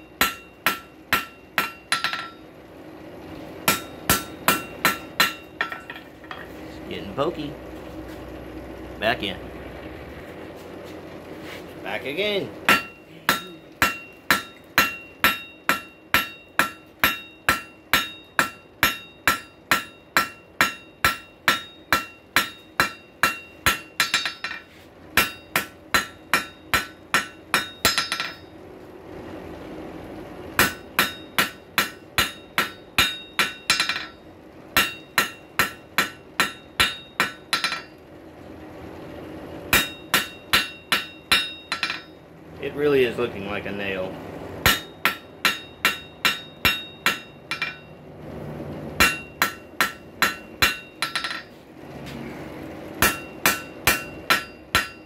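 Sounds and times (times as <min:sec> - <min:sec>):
hammer striking on anvil: 0:00.0 - 0:02.4, 0:03.6 - 0:06.5, 0:12.7 - 0:28.5, 0:30.6 - 0:34.2, 0:34.8 - 0:38.0, 0:39.7 - 0:42.2, 0:44.6 - 0:47.9, 0:49.0 - 0:51.6, 0:53.0 - 0:55.0
anvil ringing: 0:00.0 - 0:02.5, 0:03.6 - 0:06.5, 0:12.7 - 0:28.6, 0:30.6 - 0:38.0, 0:39.7 - 0:42.2, 0:44.6 - 0:48.0, 0:49.0 - 0:51.6, 0:53.0 - 0:55.0.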